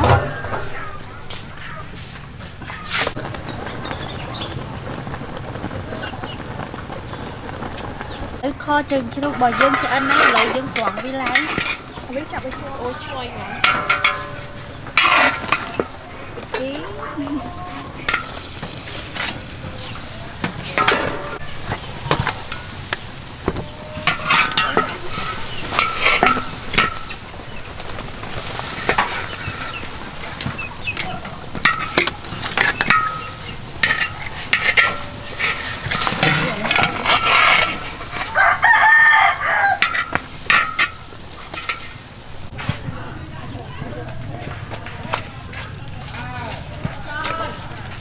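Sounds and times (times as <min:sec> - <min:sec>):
low sizzle: 0:00.0 - 0:48.0
tongs scraping metal wok: 0:08.6 - 0:42.5
rooster crowing: 0:13.2 - 0:14.0, 0:23.5 - 0:25.5, 0:38.2 - 0:40.2.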